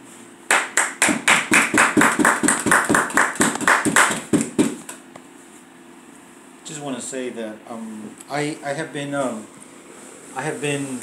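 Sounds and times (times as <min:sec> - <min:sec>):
hands clapping: 0:00.5 - 0:05.0.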